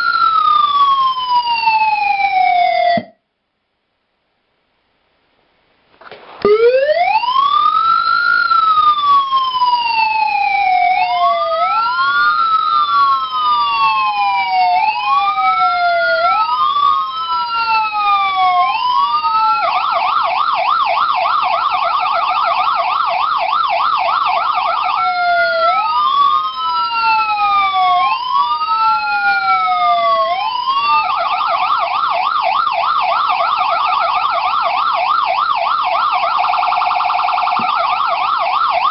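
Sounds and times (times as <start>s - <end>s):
electronic siren wailing and yelping: 0.0s - 3.2s, 6.4s - 38.9s.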